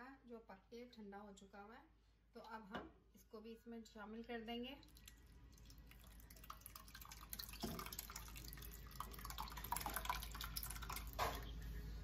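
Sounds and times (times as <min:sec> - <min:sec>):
milk pouring and splashing: 0:04.8 - 0:11.7.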